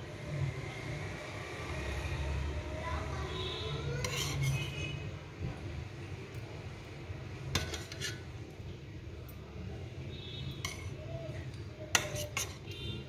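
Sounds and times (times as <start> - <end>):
kitchen utensils and dishes clinking: 7.5 - 8.3, 10.6 - 11.0, 11.9 - 12.9.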